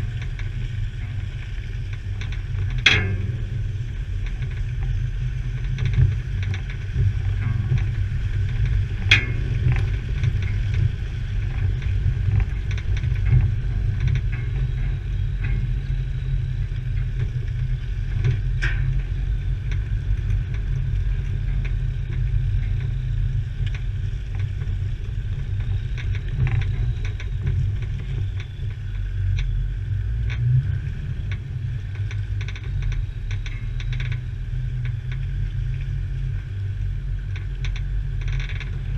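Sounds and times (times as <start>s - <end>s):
vehicle low rumble: 0.0s - 38.9s
knocks and rattles: 1.9s - 29.5s.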